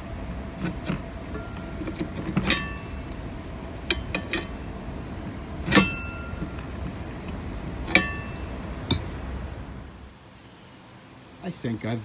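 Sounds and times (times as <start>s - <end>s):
wrench clinking on metal: 1.3s - 3.2s, 3.9s - 4.6s, 5.7s - 6.7s, 7.9s - 9.1s.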